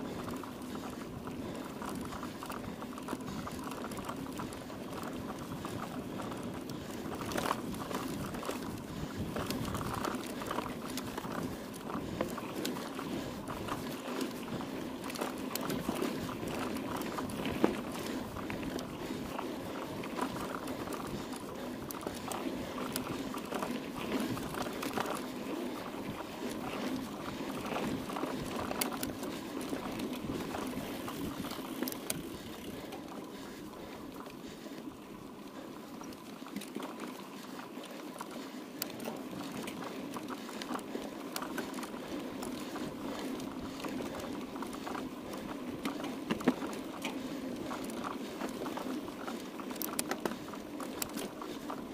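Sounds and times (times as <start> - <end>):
bike rattling: 0.0 - 51.9
bike tyre riding noise: 0.0 - 51.9.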